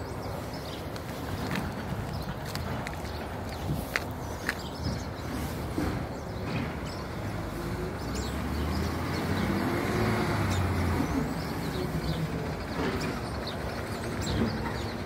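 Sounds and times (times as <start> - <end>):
garbage truck engine rumbling: 4.1 - 15.0.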